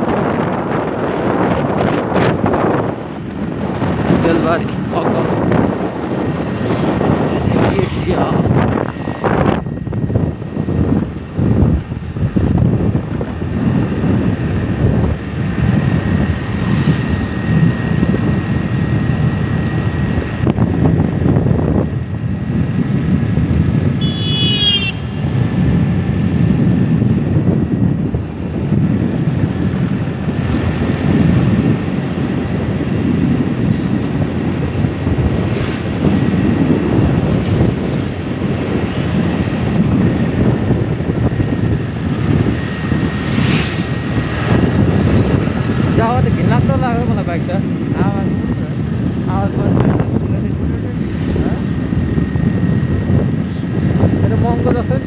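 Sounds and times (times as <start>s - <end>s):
motorcycle engine and tyre noise: 0.0s - 55.0s
wind rush on microphone: 0.0s - 55.0s.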